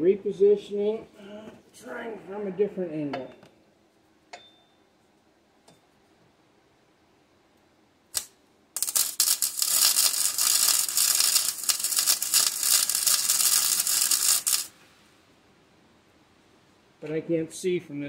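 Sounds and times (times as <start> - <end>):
welder arc crackling: 8.1 - 14.8.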